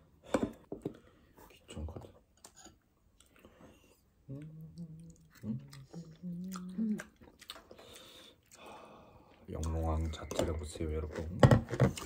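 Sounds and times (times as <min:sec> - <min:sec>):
person chewing: 0:02.4 - 0:09.8
person humming mmm: 0:04.2 - 0:07.3.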